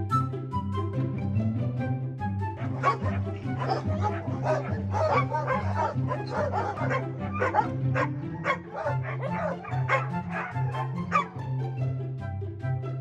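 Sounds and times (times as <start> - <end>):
background music: 0.0 - 13.0
puppies yipping and whimpering: 2.6 - 11.4.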